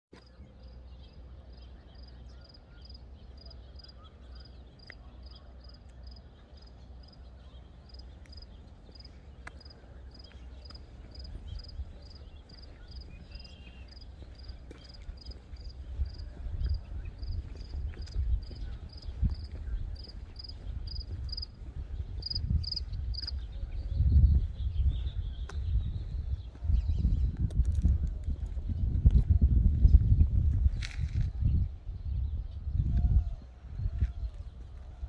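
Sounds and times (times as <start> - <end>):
cricket chirping: 18.9 - 21.5, 22.2 - 23.3.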